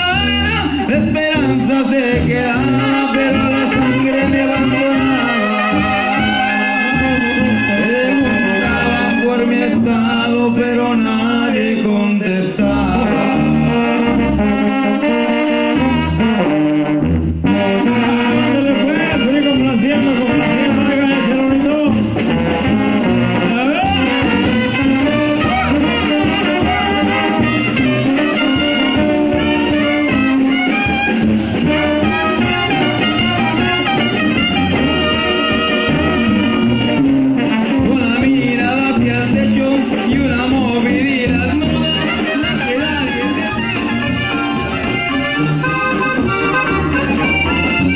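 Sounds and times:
man singing into microphone: 0:00.0 - 0:14.3, 0:17.9 - 0:22.2, 0:23.4 - 0:24.7, 0:25.4 - 0:30.2, 0:37.6 - 0:43.7
brass band music: 0:00.0 - 0:47.9.

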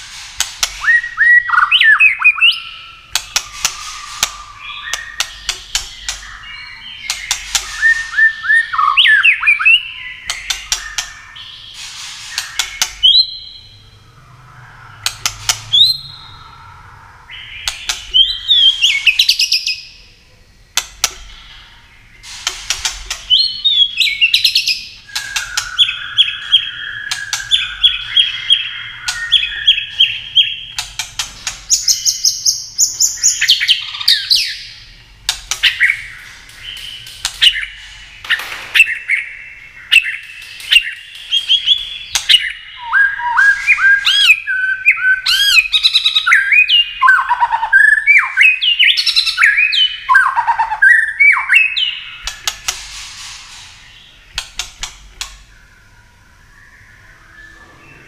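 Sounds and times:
sharp bird clicks: 0:00.2 - 0:13.7, 0:14.8 - 0:16.6, 0:17.5 - 0:20.0, 0:20.7 - 0:55.6
bird singing whistled phrases: 0:00.8 - 0:11.7, 0:12.3 - 0:19.9, 0:23.3 - 0:30.8, 0:38.8 - 0:52.3.

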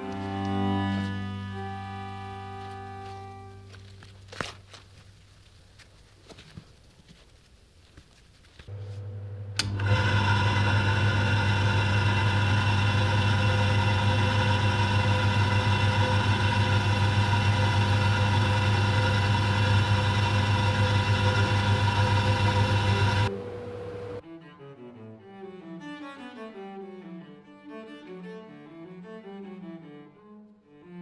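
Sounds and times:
burnisher motor humming: 0:08.7 - 0:24.2
switch click: 0:09.5 - 0:09.9.

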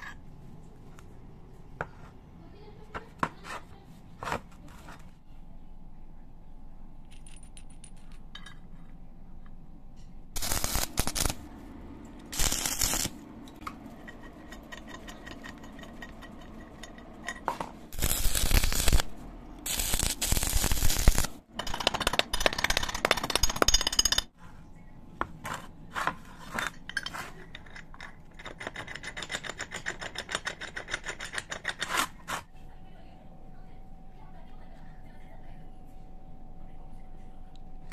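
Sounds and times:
metal parts clinking: 0:07.0 - 0:08.7, 0:13.9 - 0:19.0, 0:21.6 - 0:24.3, 0:26.5 - 0:32.0
electric arc welding crackling: 0:10.4 - 0:11.5, 0:12.2 - 0:13.2, 0:17.9 - 0:21.4.

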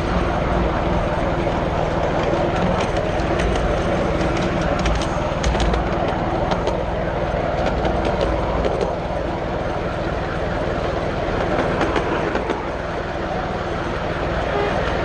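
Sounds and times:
train wheels rumbling on rails: 0:00.0 - 0:15.0
wheels clicking over rail joints: 0:00.0 - 0:15.0.

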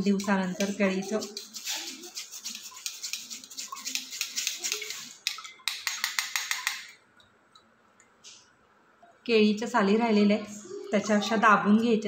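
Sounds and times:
metal spoon scraping mesh strainer: 0:00.0 - 0:05.3.

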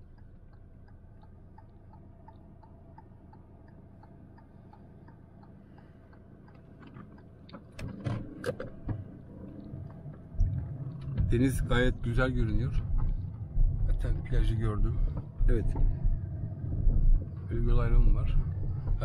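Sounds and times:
car cabin hum: 0:00.0 - 0:19.0
turn signal ticking: 0:00.0 - 0:19.0.

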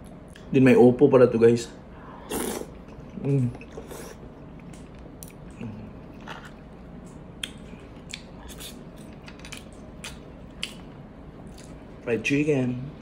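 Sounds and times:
person chewing food: 0:02.3 - 0:11.8.

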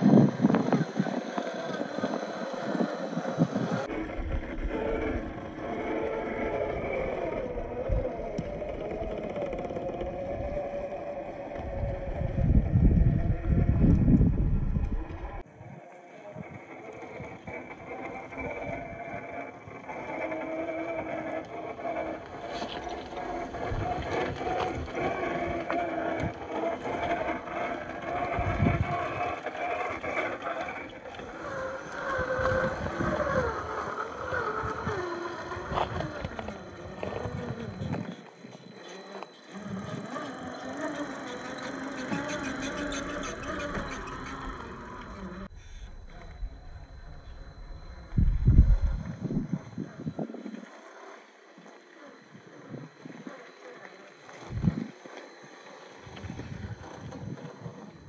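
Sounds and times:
electric motor and gears whining: 0:00.0 - 0:58.0
low rumble: 0:10.3 - 0:15.4, 0:45.0 - 0:50.2.

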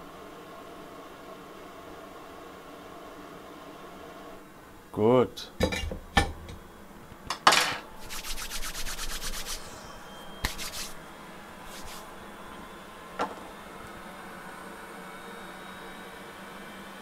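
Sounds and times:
small metal parts set down: 0:07.4 - 0:07.8.

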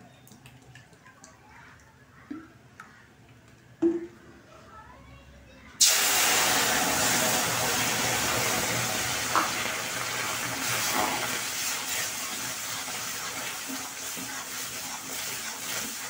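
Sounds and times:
water sizzling in hot pan: 0:05.8 - 0:16.0.

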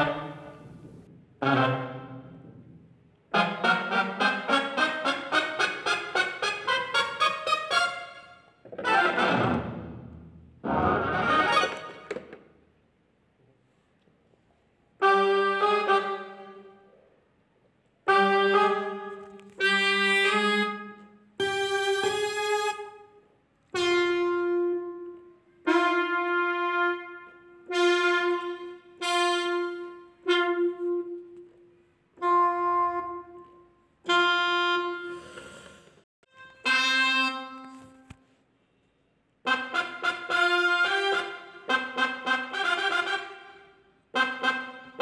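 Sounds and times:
brass-like wind instrument melody: 0:00.0 - 0:00.8, 0:01.4 - 0:02.5, 0:03.3 - 0:10.0, 0:10.6 - 0:12.1, 0:15.0 - 0:16.9, 0:18.0 - 0:35.6, 0:36.2 - 0:38.2, 0:39.4 - 0:45.0.

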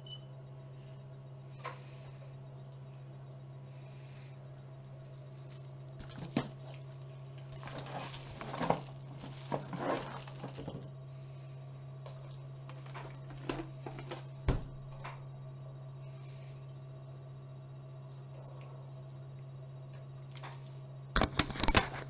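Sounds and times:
low electrical hum: 0:00.0 - 0:22.0
handling rustling: 0:05.5 - 0:10.8.

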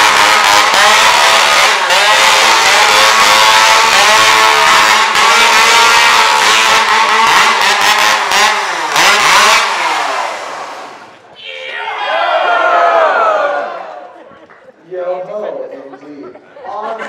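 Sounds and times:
chainsaw engine revving: 0:00.0 - 0:11.2.

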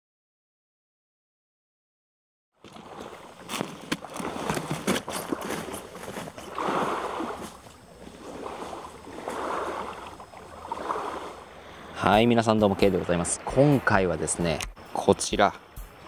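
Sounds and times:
small waves lapping on stones: 0:02.6 - 0:11.5.

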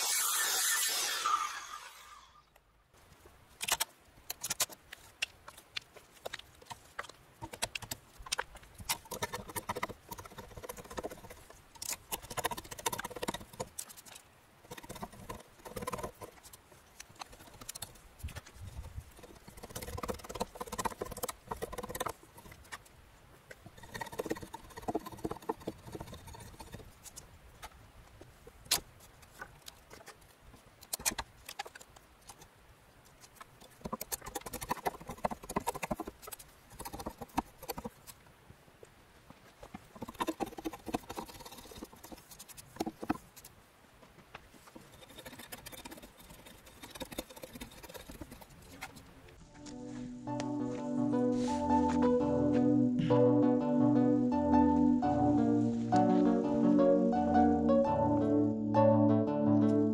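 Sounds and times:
chisel knocking and scraping wood: 0:06.3 - 0:14.0, 0:14.7 - 0:16.5, 0:17.1 - 0:22.8, 0:23.6 - 0:26.9, 0:33.5 - 0:38.2, 0:39.6 - 0:43.5.

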